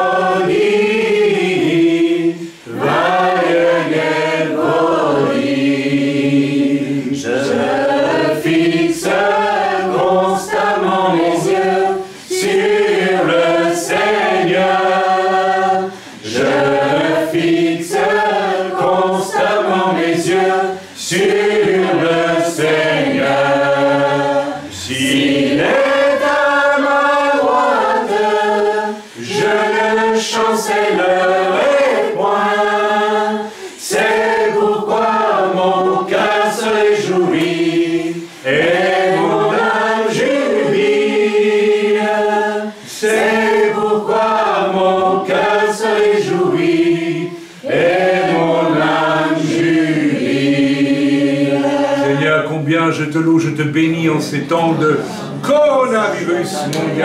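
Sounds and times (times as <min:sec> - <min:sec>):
group singing a worship song: 0:00.0 - 0:57.0.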